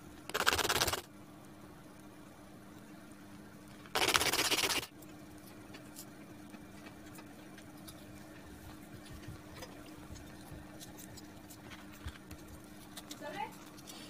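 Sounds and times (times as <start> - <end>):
low steady hum: 0.0 - 14.0
cardboard rasping: 4.0 - 4.9.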